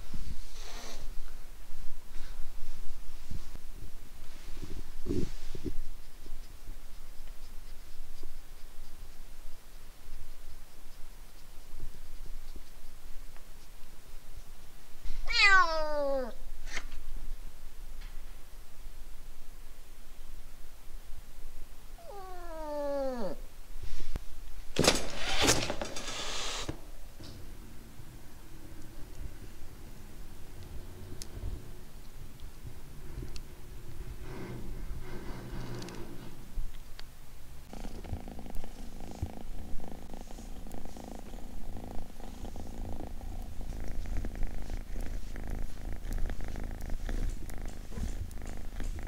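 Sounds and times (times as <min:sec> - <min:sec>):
kitten purring: 0:00.0 - 0:16.4, 0:22.0 - 0:24.1, 0:26.2 - 0:36.8, 0:37.6 - 0:49.0
cat meowing: 0:15.2 - 0:16.4, 0:22.0 - 0:23.4
cat hissing: 0:15.2 - 0:16.9, 0:22.0 - 0:23.4.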